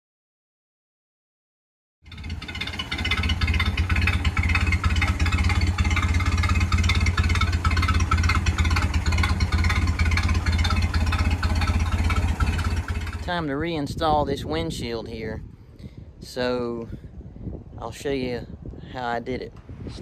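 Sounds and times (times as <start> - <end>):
car engine idling: 2.1 - 14.0.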